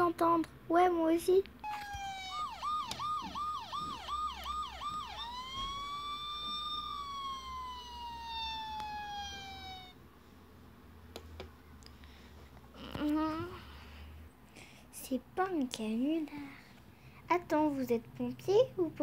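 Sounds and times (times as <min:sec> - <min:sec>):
toy electronic siren: 0:01.6 - 0:10.0.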